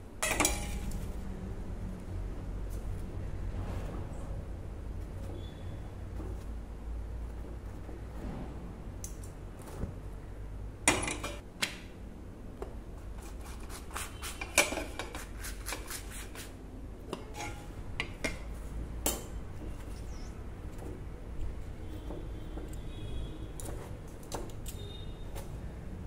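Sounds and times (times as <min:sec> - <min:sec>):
metal utensils clinking: 0:00.2 - 0:01.1, 0:10.9 - 0:11.4.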